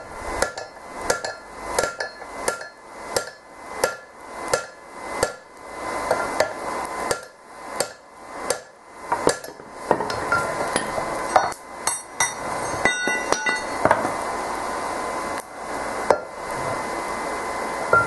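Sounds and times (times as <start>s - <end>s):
hammer striking steel on anvil: 0.4s - 5.5s, 6.1s - 14.0s
metallic ringing: 10.3s - 13.8s.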